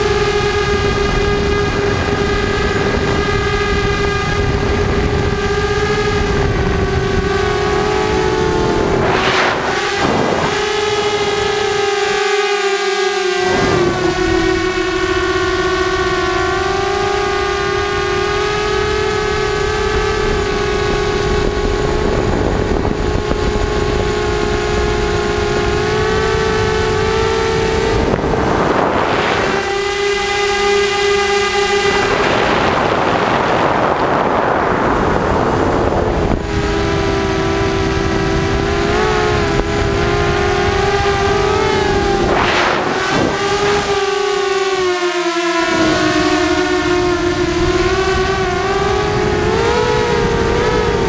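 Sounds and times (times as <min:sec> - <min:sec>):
drone motors whining: 0:00.0 - 0:51.0
rushing air noise: 0:08.2 - 0:11.8, 0:27.8 - 0:30.6, 0:41.6 - 0:44.0.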